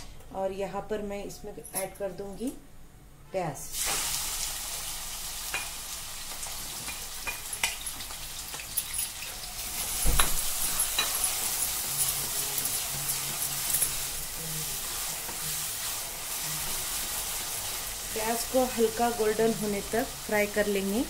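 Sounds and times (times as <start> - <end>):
onions sizzling in hot oil: 3.7 - 21.0
wooden spatula scraping a pot: 10.6 - 17.8.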